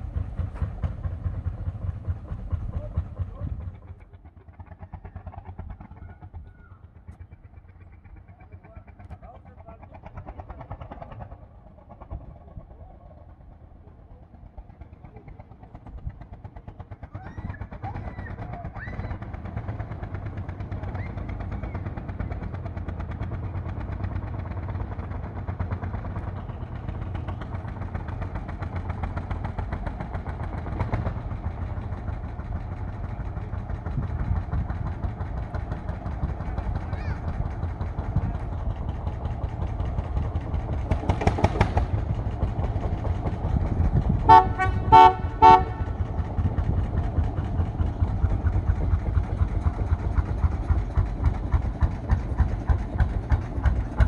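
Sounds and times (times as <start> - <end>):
tractor engine pulsing: 0.0 - 54.0.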